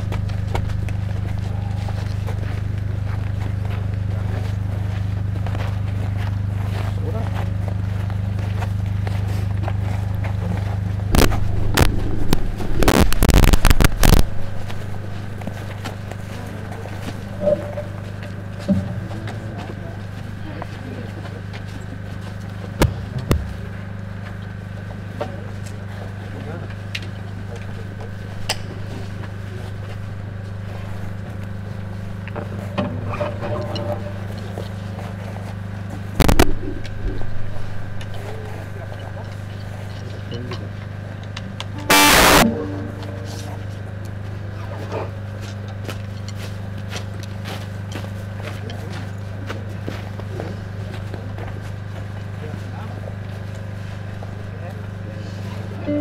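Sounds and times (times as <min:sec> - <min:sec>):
mains hum: 0:00.0 - 0:56.0
loud crackles and pops: 0:11.1 - 0:15.1, 0:36.2 - 0:37.0, 0:41.9 - 0:42.4.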